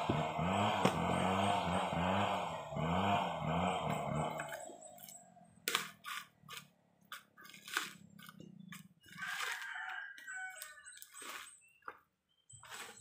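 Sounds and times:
coconuts knocking and crunching: 0.0s - 1.2s, 3.9s - 12.1s.

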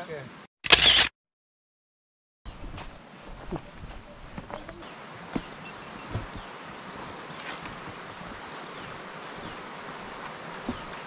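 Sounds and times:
insects chirping: 2.5s - 11.0s
soft thumps: 4.3s - 6.5s, 10.2s - 11.0s
steady hiss: 4.8s - 11.0s.

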